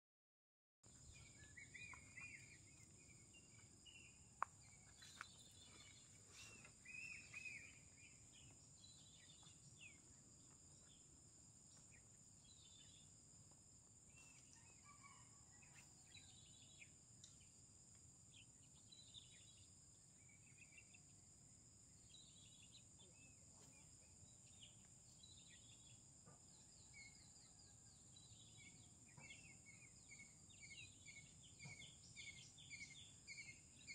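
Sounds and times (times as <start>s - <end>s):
birds chirping: 0.9s - 13.2s.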